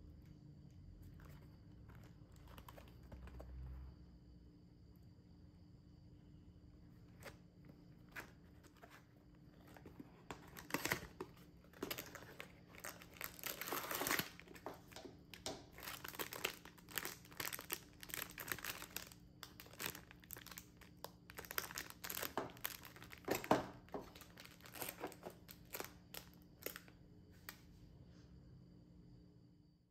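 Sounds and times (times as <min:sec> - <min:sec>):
plastic wrapping crinkling: 0:09.6 - 0:26.9.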